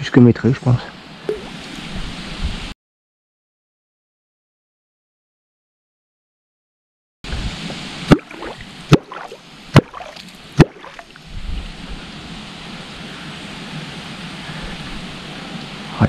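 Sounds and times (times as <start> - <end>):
water noise: 0.6 - 2.7, 7.3 - 16.0
catfish clonk striking water: 8.1 - 11.1.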